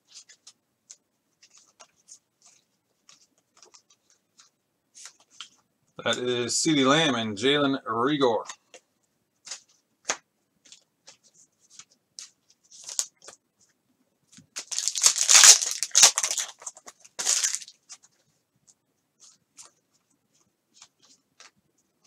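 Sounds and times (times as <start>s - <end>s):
cards rustling and clicking: 0.1s - 5.6s, 9.4s - 13.4s, 14.3s - 19.8s
foil wrapper tearing and crinkling: 14.6s - 17.8s.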